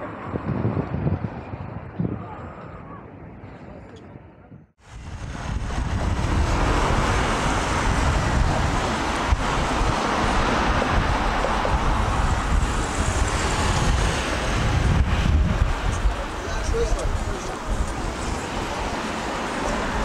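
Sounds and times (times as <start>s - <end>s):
road traffic passing: 4.8s - 20.0s.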